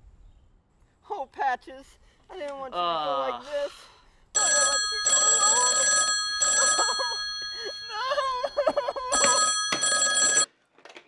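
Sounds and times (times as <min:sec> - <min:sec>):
desk telephone ringing: 0:04.4 - 0:10.5.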